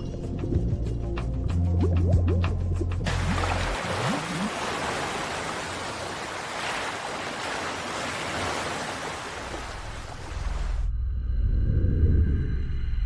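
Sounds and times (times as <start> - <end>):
waves washing over shallows: 3.1 - 10.8.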